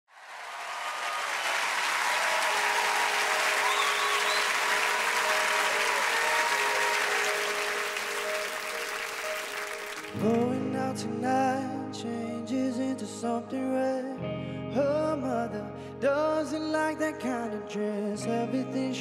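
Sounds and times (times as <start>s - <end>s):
audience applauding and cheering: 0.1s - 10.4s
high-pitched shouts: 0.4s - 8.4s.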